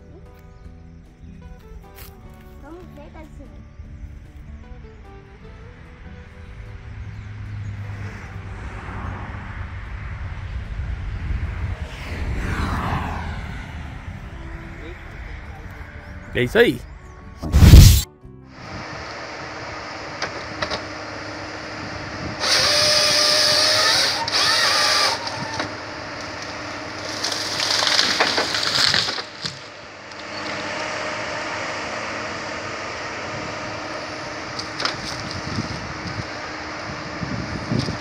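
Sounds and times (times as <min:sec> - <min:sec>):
forestry harvester running: 0:14.2 - 0:38.0
sawing and splintering wood: 0:22.2 - 0:32.5, 0:33.6 - 0:38.0.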